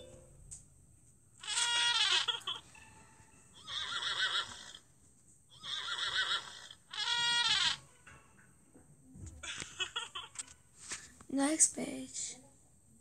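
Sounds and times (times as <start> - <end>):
cartoon animal calls: 1.4 - 2.6, 3.6 - 4.8, 5.6 - 7.8.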